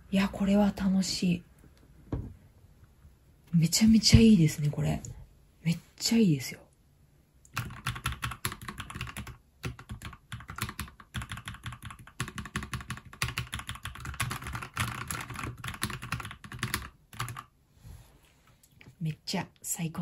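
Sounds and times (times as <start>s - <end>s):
mechanical keyboard typing: 7.5s - 17.5s.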